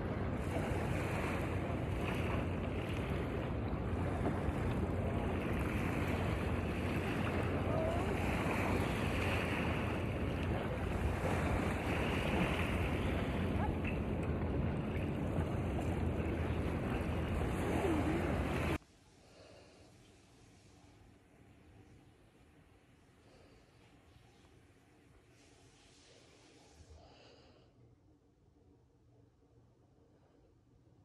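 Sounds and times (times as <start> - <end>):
water washing at shore: 0.0 - 18.8
wind rushing over microphone: 0.0 - 18.8.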